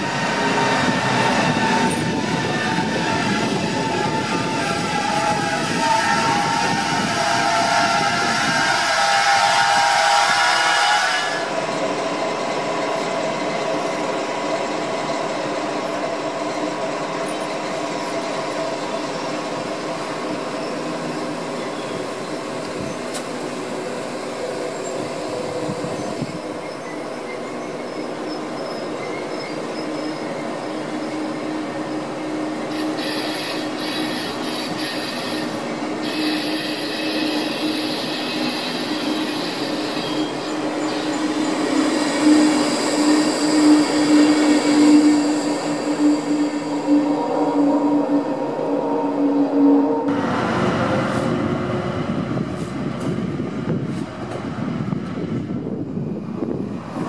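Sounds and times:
train wheels squealing: 0.0 - 11.5, 16.4 - 50.1
train rumble: 0.0 - 57.0.

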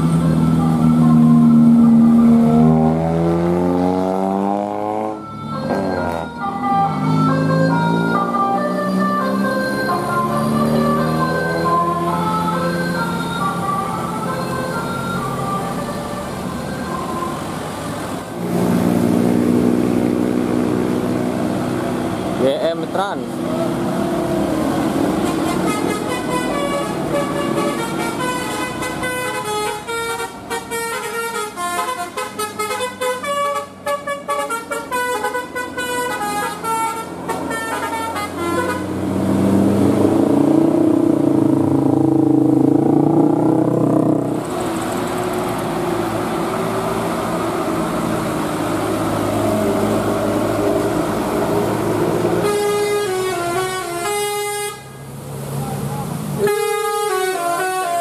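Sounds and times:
bus engine passing: 0.0 - 58.0
traffic noise: 0.0 - 58.0
musical air horn tune: 25.2 - 39.0, 52.4 - 55.0, 56.4 - 58.0.

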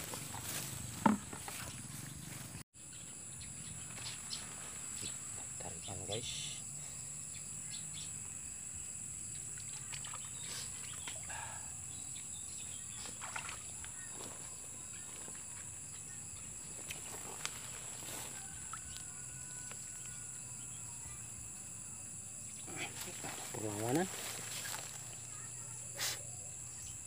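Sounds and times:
chorus of night insects: 0.0 - 27.0.

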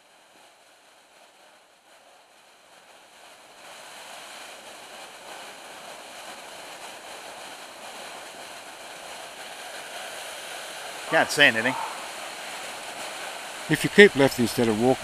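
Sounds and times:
creek cascading over rocks: 7.6 - 15.0.

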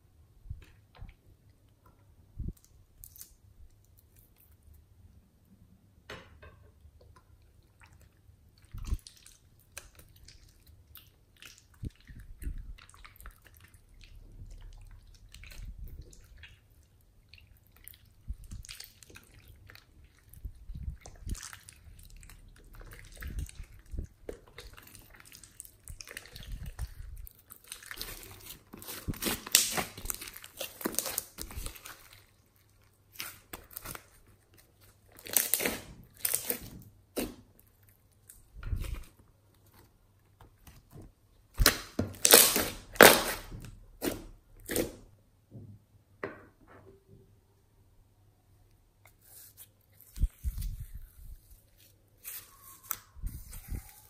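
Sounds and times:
slime squishing with sticky crackles: 7.3 - 45.1, 48.9 - 54.0.

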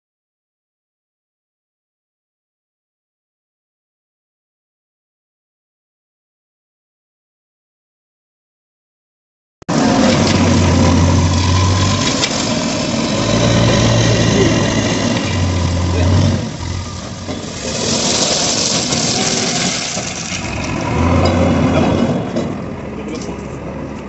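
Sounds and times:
diesel engine running hard: 9.7 - 24.0
crushed stone being scooped: 17.5 - 20.1.

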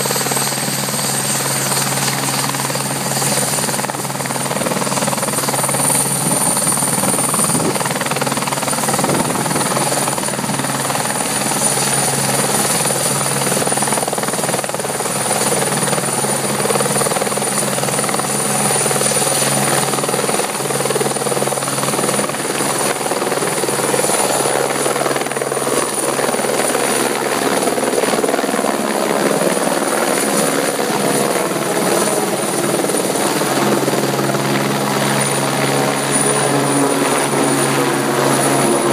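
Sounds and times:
helicopter turbine and rotor: 0.0 - 38.9.

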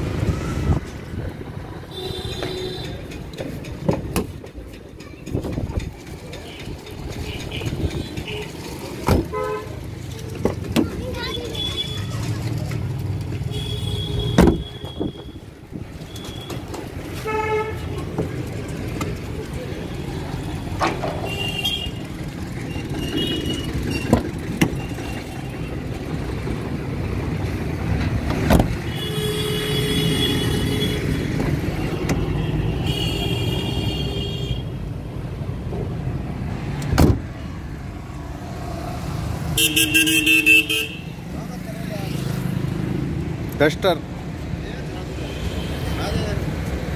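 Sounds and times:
low traffic noise: 0.0 - 46.9
vehicle horn toot: 39.6 - 41.1.

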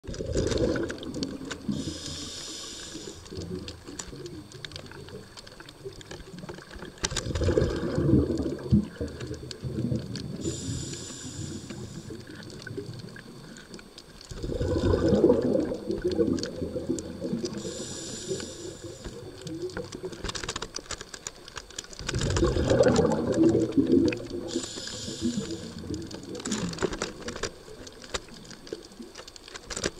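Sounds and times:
underwater rumbling and bubbling: 0.0 - 29.9
short high hiss: 1.7 - 3.2, 24.5 - 25.8.

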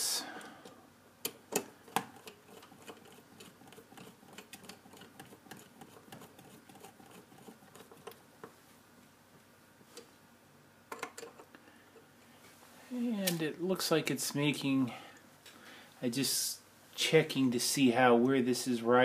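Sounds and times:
small clicks of handling parts: 10.9 - 12.0.

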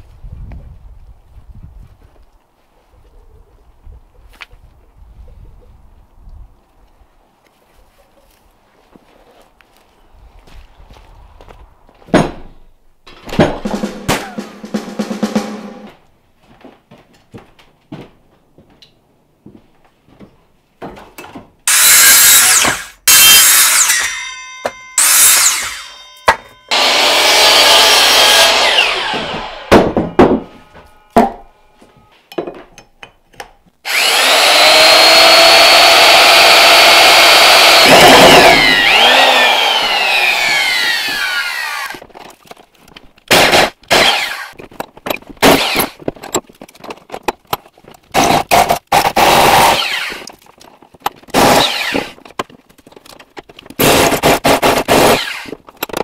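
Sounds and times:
wood knocks and clatter: 12.0 - 13.7, 29.0 - 31.5, 44.6 - 48.7, 52.0 - 54.8, 55.5 - 56.0
power saw cutting wood: 21.7 - 32.1, 33.8 - 42.0, 43.3 - 44.6, 45.4 - 46.0, 48.2 - 50.4, 51.4 - 52.2, 53.8 - 55.6
motor winding down whine: 26.7 - 29.8, 33.9 - 41.9.

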